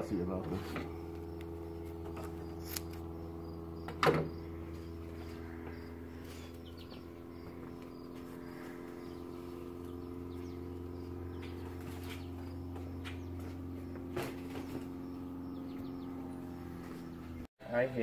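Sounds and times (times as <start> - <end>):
steady mechanical hum: 0.0 - 18.0
faint bird chirps: 4.3 - 17.4.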